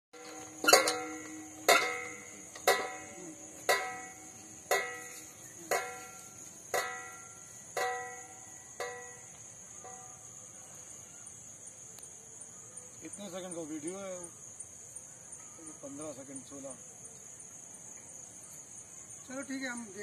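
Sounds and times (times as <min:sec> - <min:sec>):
metal gym machine arms clanking: 0:00.2 - 0:05.1
crickets chirring: 0:00.2 - 0:20.0.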